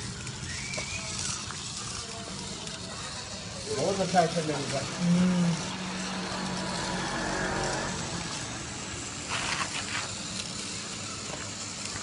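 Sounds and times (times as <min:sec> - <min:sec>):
electric motor humming: 0:00.0 - 0:12.0
wheels crunching on rough ground: 0:03.7 - 0:12.0.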